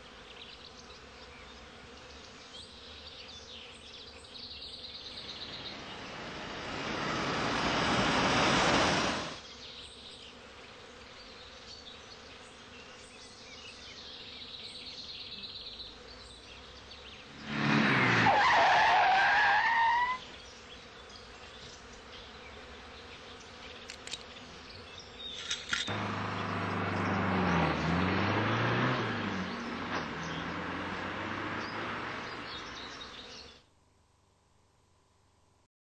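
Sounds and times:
cars passing on a road: 0:05.1 - 0:09.4, 0:17.3 - 0:20.2, 0:25.7 - 0:33.4.

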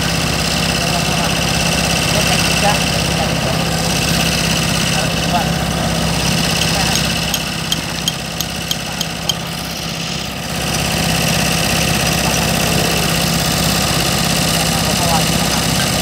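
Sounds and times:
diesel engine idling: 0:00.0 - 0:16.0
sharp regular clicks: 0:06.6 - 0:09.5.

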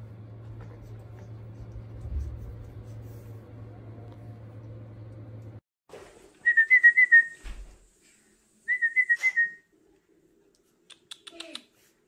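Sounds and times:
person whistling: 0:06.4 - 0:07.4, 0:08.7 - 0:09.6.

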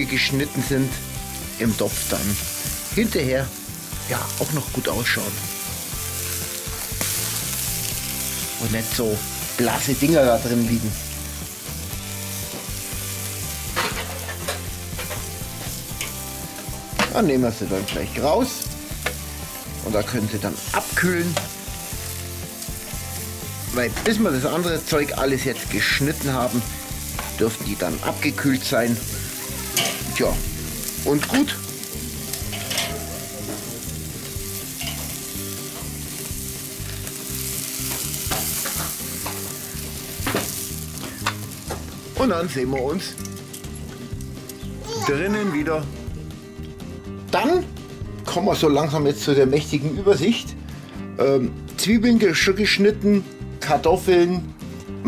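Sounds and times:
sausages sizzling on a grill: 0:00.0 - 0:55.0
metal tongs clicking: 0:32.3 - 0:33.6, 0:34.8 - 0:35.2, 0:43.2 - 0:44.6.

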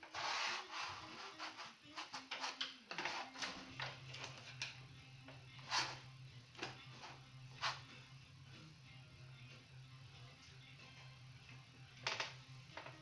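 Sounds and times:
palette knife scraping canvas: 0:00.0 - 0:03.4.

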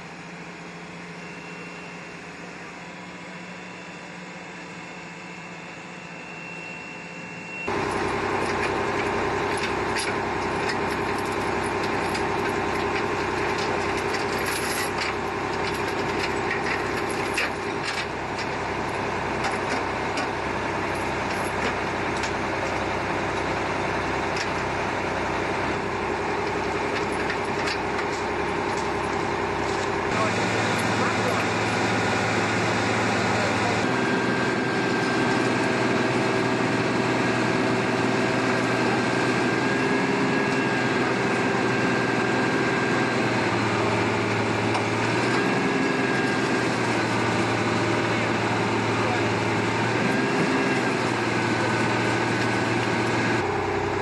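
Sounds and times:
crane engine running: 0:00.0 - 0:54.0
metal chains clinking: 0:13.6 - 0:18.0.

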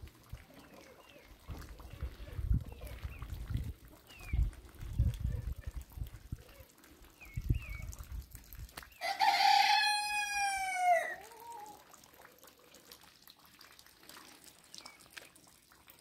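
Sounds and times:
rooster crowing: 0:09.0 - 0:11.3.

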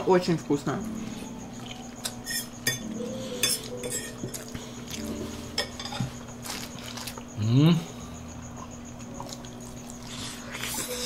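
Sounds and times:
chewing corn on the cob: 0:08.6 - 0:11.0.

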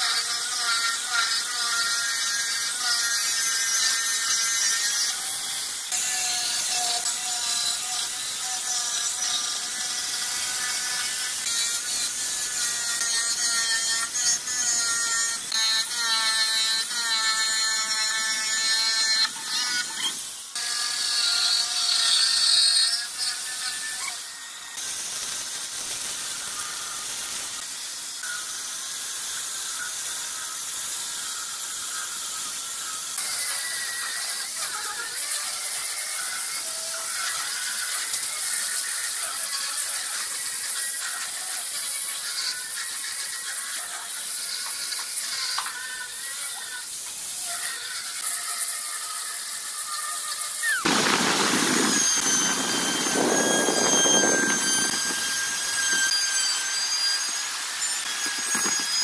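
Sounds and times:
angle grinder sanding wood: 0:00.0 - 0:59.0
electric jigsaw cutting wood: 0:00.0 - 0:59.0.

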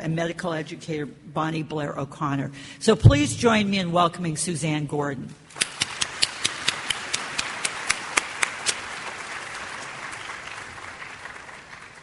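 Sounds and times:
audience applauding: 0:05.6 - 0:12.0
sharp individual claps: 0:05.6 - 0:12.0.

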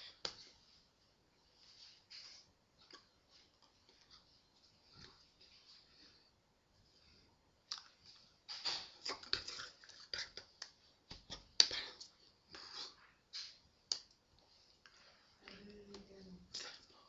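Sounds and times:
hands tapping and brushing: 0:08.0 - 0:14.8.

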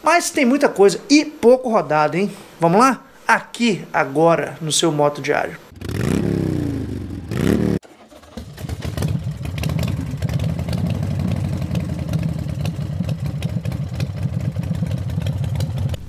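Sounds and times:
motorcycle engine revving and idling: 0:05.7 - 0:16.0.

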